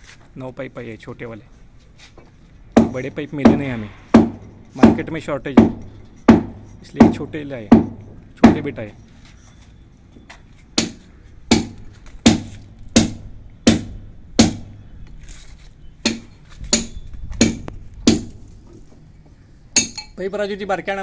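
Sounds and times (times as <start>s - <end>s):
hammer blows: 2.7s - 8.8s.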